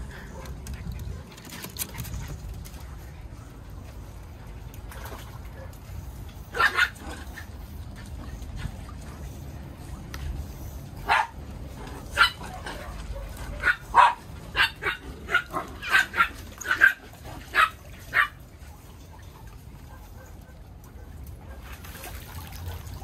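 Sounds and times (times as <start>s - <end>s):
dog barking: 11.1s - 11.3s, 12.2s - 18.4s.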